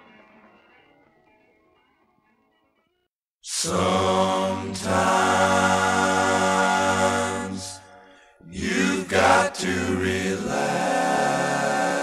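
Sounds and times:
voices singing in harmony: 3.4 - 12.0.

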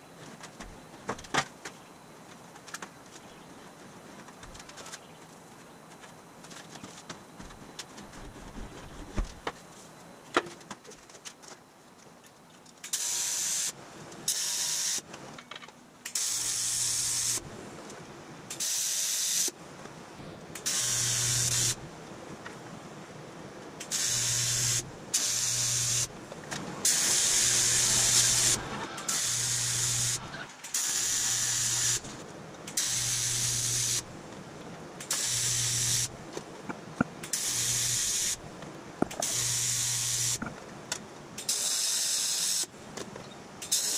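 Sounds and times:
welding arc crackling hiss: 12.8 - 15.1, 16.0 - 17.6, 18.5 - 19.6, 20.2 - 21.9, 23.8 - 34.2, 35.0 - 36.2, 37.0 - 40.5, 41.4 - 42.8, 43.6 - 43.9.

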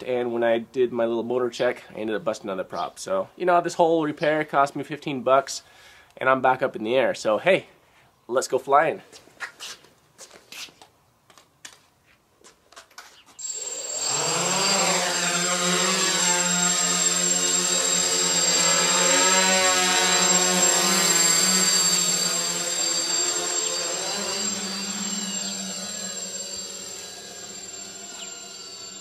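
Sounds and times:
drone motors whining: 13.4 - 29.0.

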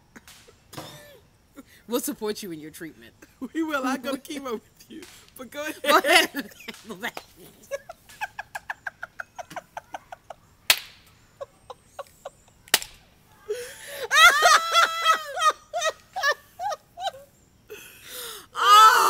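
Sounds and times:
sharp smacks: 0.2 - 1.0, 5.0 - 5.4, 10.7 - 11.2, 12.6 - 13.1
women laughing: 5.7 - 10.6, 11.3 - 12.6, 13.5 - 17.9.

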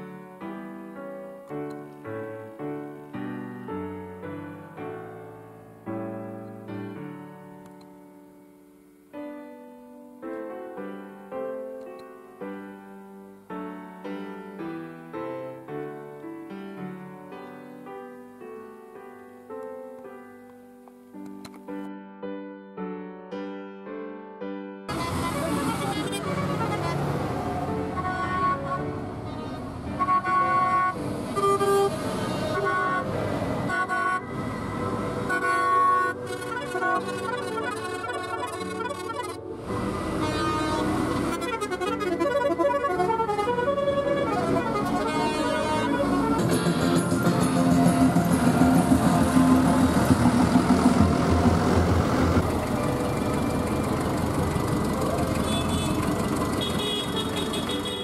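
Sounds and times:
tooting horn-like musical notes: 24.9 - 58.0
tractor engine running: 34.5 - 58.0.

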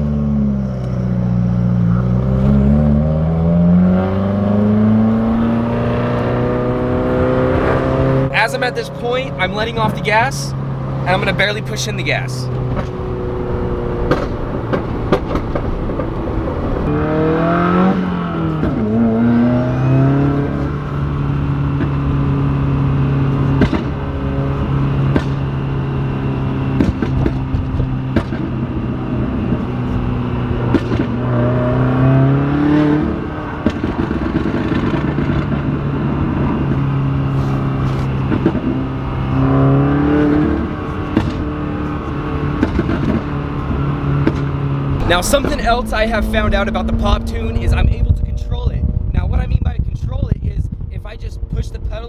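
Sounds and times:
car engine revving: 0.0 - 52.0
exhaust pops: 12.5 - 13.0, 13.9 - 17.0, 21.7 - 22.1, 23.3 - 25.6, 26.6 - 29.7, 30.6 - 31.4, 33.0 - 52.0.

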